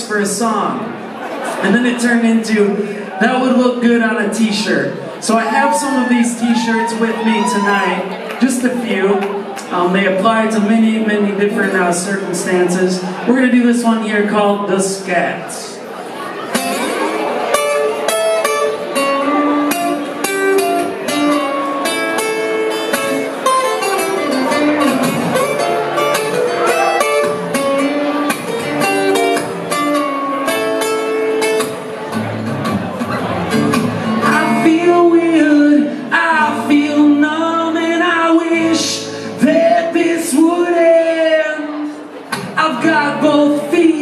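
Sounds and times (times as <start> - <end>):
acoustic guitar strumming chords: 16.5 - 44.0
man singing: 34.1 - 44.0.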